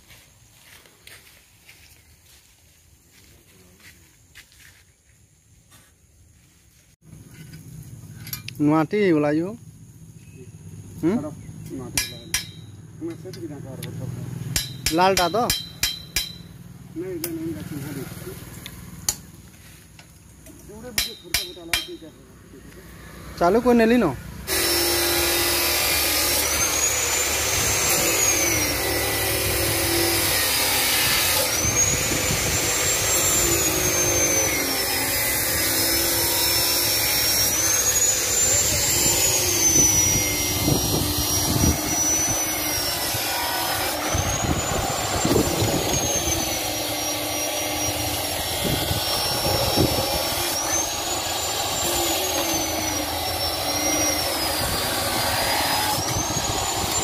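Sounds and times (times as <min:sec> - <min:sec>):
mechanical drone: 0:22.8 - 0:57.0.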